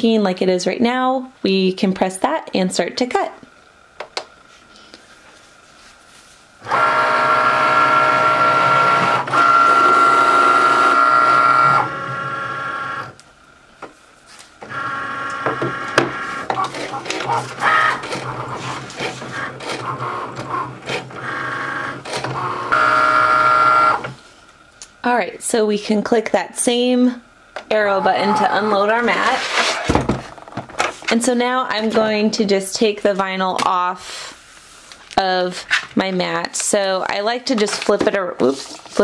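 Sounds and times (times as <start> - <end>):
cutting machine motors whirring: 6.6 - 13.2, 14.6 - 24.2, 27.6 - 29.4.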